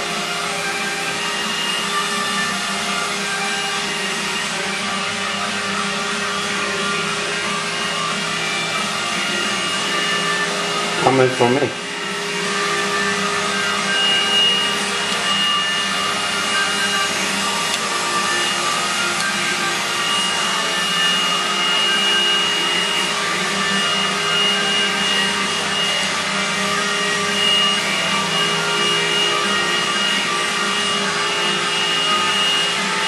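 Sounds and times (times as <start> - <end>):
robot vacuum cleaner whining hum: 0.0 - 33.0.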